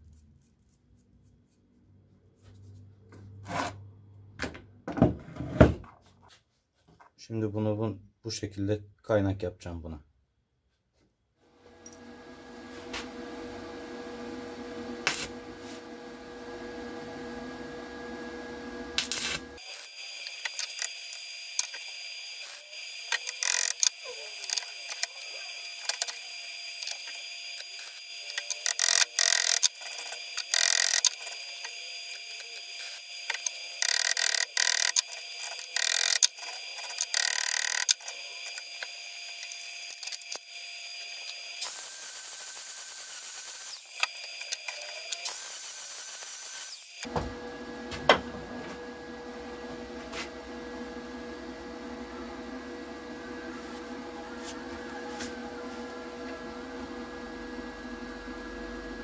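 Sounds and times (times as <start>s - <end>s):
arc welding crackle: 15.0s - 15.4s, 19.0s - 47.1s
angle grinder grinding metal: 18.8s - 47.1s.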